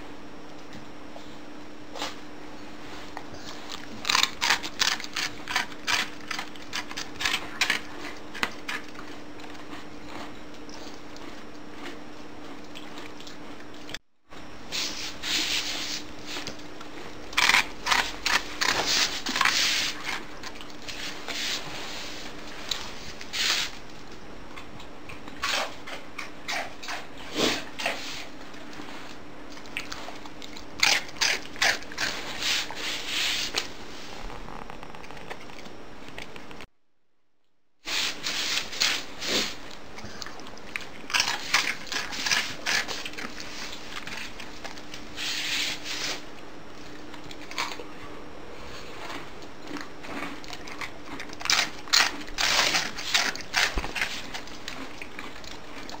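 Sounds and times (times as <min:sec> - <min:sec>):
dog chewing and crunching: 0:01.9 - 0:36.6, 0:38.2 - 0:56.0.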